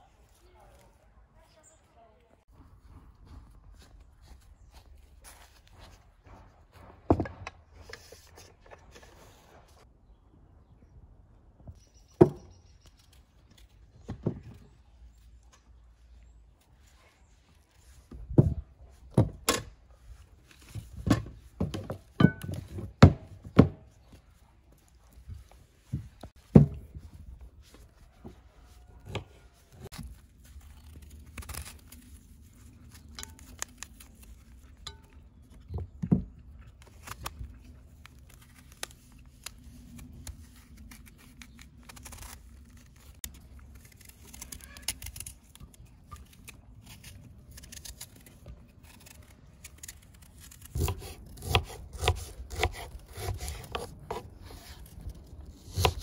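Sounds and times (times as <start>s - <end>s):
knife scraping fruit peel: 28.8s - 35.5s, 36.8s - 56.0s
knife chopping on wooden board: 50.7s - 54.3s.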